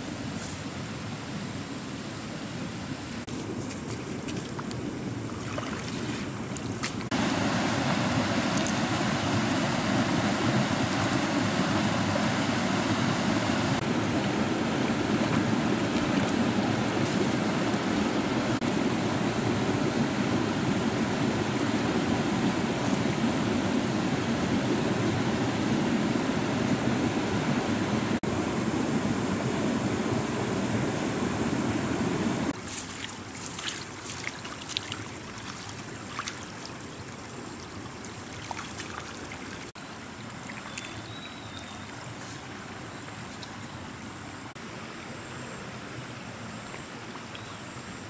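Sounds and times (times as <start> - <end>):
river rushing over rapids: 7.1 - 32.6.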